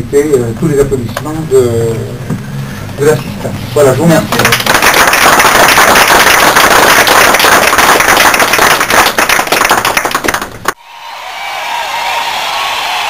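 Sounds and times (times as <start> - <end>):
people clapping: 4.3 - 10.8.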